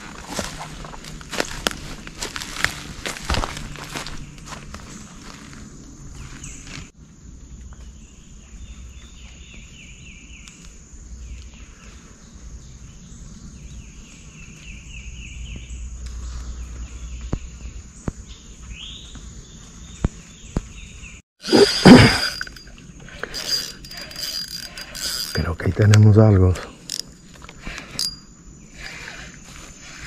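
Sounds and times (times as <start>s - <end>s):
high insect drone: 0.0s - 30.0s
fishing reel drag ratcheting: 22.1s - 25.4s, 26.8s - 27.1s, 27.7s - 28.2s.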